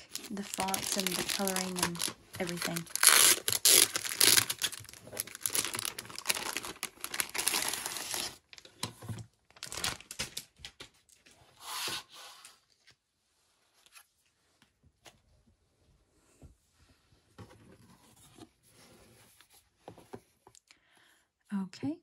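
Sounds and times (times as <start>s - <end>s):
plastic sleeve crinkling: 0.0s - 8.9s, 9.5s - 11.2s.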